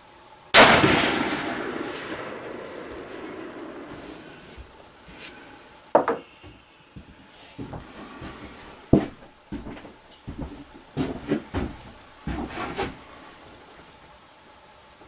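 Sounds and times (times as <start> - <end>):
small clunks and rustles: 6.0 - 13.2.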